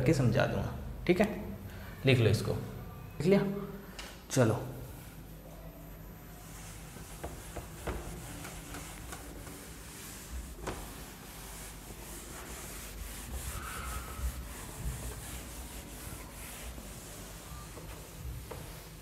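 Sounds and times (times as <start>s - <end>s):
duster wiping whiteboard: 6.2s - 19.0s.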